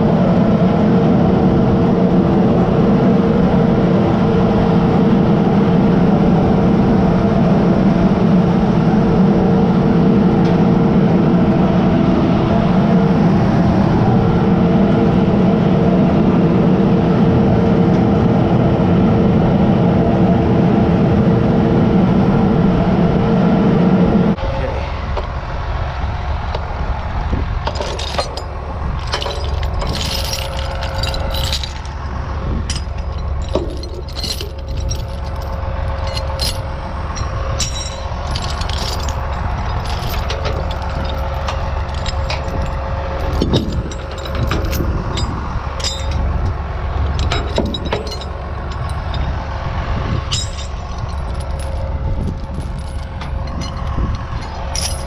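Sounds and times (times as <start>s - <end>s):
low rumble: 0.0s - 55.0s
metal chains clinking and rattling: 27.7s - 32.0s, 32.6s - 49.5s, 50.1s - 55.0s.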